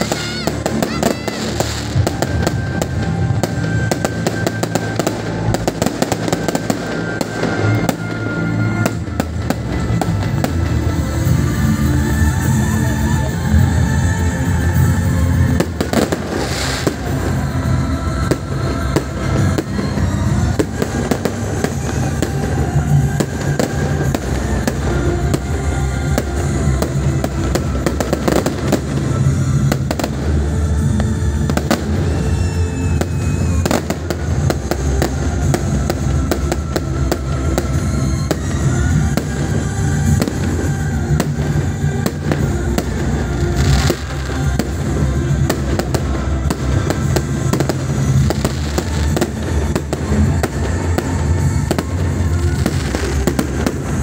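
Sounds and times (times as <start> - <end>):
fireworks bangs and crackles: 0.0 - 54.0
music playing: 0.0 - 54.0.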